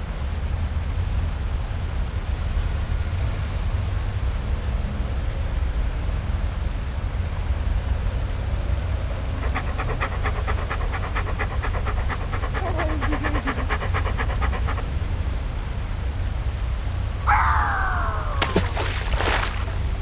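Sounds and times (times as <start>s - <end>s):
dog panting quickly: 8.6s - 15.6s.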